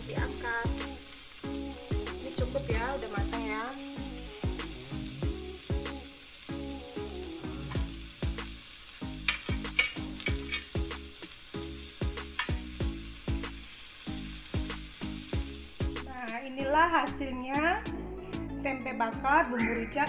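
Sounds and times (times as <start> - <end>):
food sizzling on grill pan: 0.0 - 17.2
background music with beat: 0.0 - 20.0
metal tongs clicking and scraping: 9.3 - 10.7.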